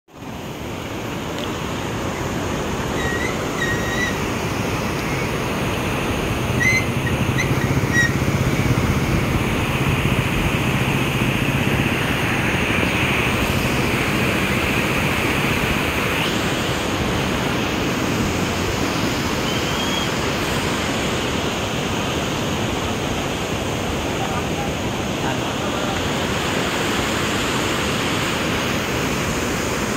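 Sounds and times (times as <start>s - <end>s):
river water rushing: 0.1s - 29.9s.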